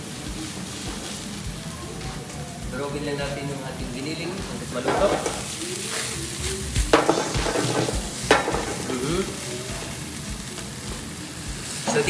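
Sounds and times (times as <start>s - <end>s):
food sizzling in a wok: 0.0s - 12.0s
utensil knocking on pan: 4.4s - 5.5s, 6.9s - 9.0s.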